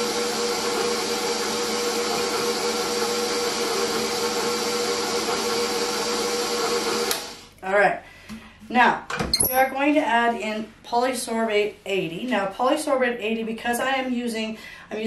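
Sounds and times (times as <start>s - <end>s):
stand mixer motor hum: 0.0s - 7.5s.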